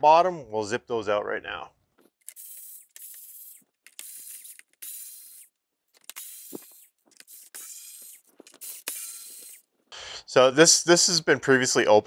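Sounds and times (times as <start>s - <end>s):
cordless screwdriver whirring: 2.1s - 9.7s.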